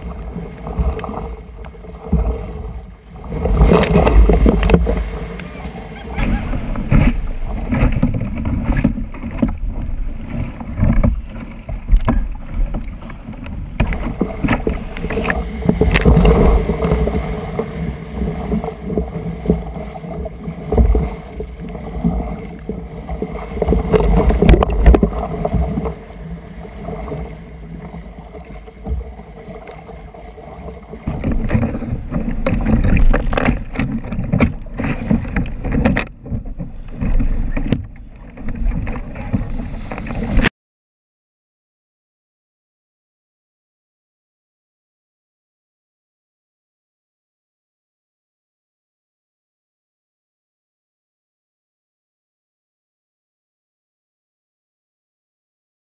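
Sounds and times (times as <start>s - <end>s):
paddle splashes: 0.0s - 40.5s
surf breaking and rushing: 0.0s - 40.5s.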